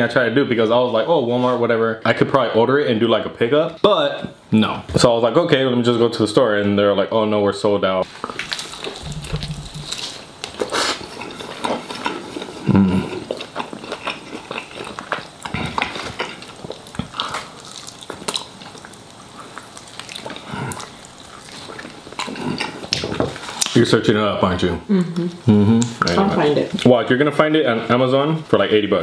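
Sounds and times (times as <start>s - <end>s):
biting and chewing: 8.1s - 23.8s
lip smacks: 8.2s - 11.8s
wet mouth noises: 8.2s - 23.8s, 25.0s - 26.2s.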